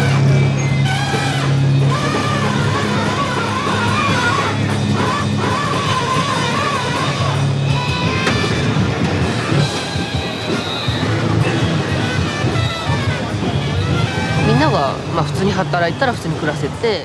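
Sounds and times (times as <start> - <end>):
rock music with guitar: 0.0 - 15.1.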